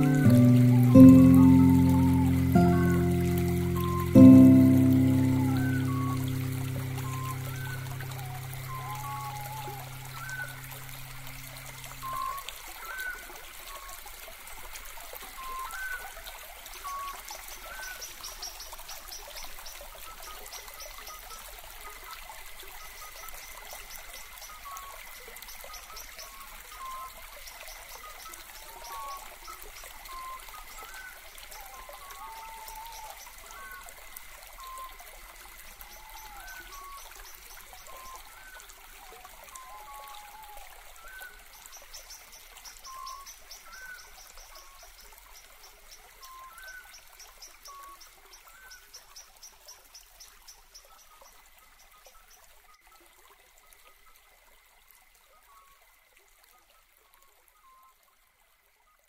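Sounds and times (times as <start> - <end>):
faint steady high tone: 0.0 - 10.9
water trickling and babbling: 0.0 - 59.0.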